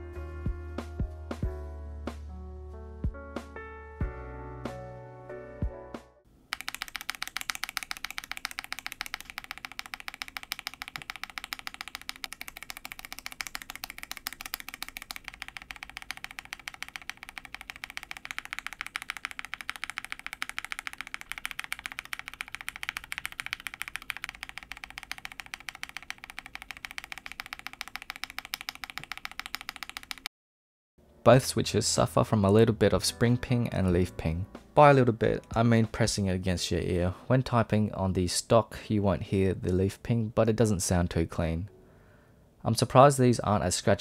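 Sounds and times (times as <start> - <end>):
mechanical keyboard typing: 6.5 - 30.3.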